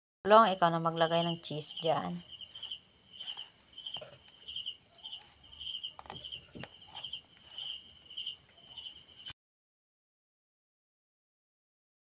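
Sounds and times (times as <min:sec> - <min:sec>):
crickets chirping: 0:00.3 - 0:09.3
high insect hiss: 0:00.3 - 0:09.3.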